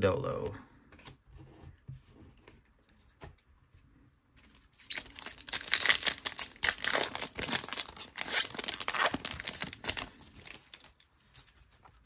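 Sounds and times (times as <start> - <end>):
foil wrapper tearing and crinkling: 4.8 - 11.0.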